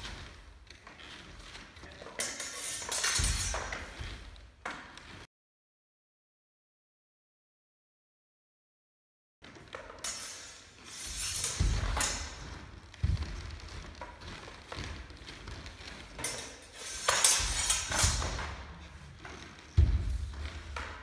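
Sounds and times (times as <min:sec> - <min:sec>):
steel swords clinking and scraping: 0:01.8 - 0:04.0, 0:10.0 - 0:12.7, 0:16.0 - 0:19.0
bare feet thudding on wooden floor: 0:11.6 - 0:16.2, 0:19.2 - 0:21.0.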